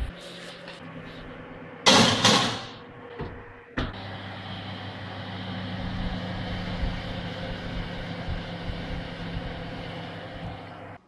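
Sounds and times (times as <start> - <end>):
oven humming: 0.0 - 11.0
oven door shutting: 1.8 - 4.1.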